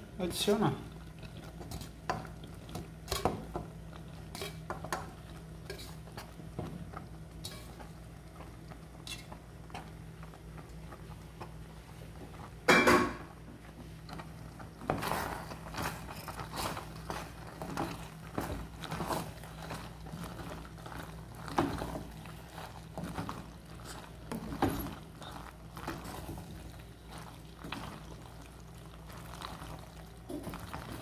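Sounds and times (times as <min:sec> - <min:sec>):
pot clattering: 0:12.7 - 0:13.3.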